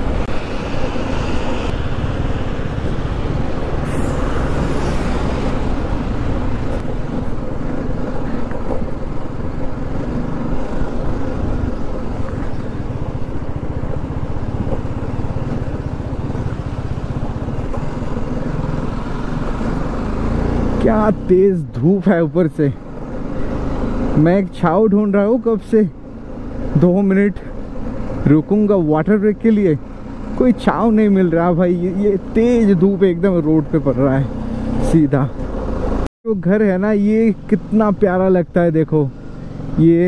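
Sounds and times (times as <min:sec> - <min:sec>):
road and wind noise: 0:00.0 - 0:40.0
motorcycle engine running: 0:05.2 - 0:21.2.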